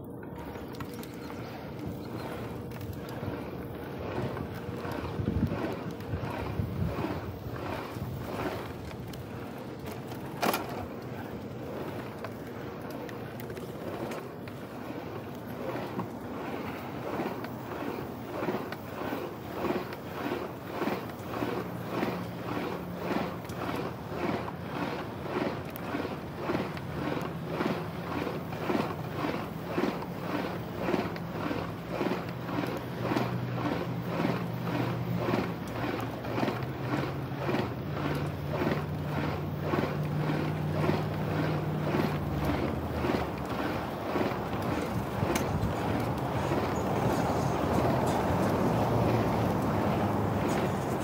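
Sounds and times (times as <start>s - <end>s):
bicycle riding hum with pulses: 0.0s - 51.0s
road and tyre noise: 0.0s - 51.0s
wind rushing over microphone: 1.3s - 9.8s, 40.7s - 51.0s.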